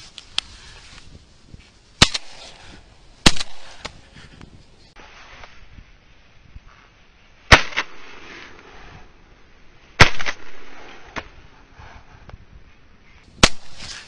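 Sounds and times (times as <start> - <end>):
shotgun shots: 2.0 - 4.0, 7.5 - 8.6, 10.0 - 11.4, 13.4 - 14.0.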